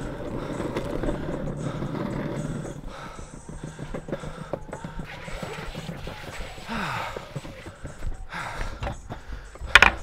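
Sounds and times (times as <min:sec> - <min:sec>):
longboard wheels clacking on joints: 0:00.0 - 0:10.0
wheels rolling low rumble: 0:00.0 - 0:10.0.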